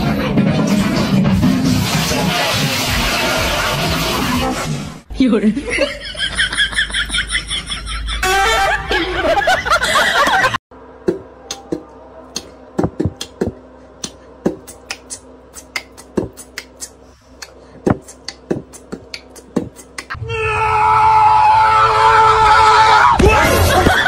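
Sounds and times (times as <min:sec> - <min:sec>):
person laughing: 0:05.6 - 0:10.6, 0:23.3 - 0:24.0.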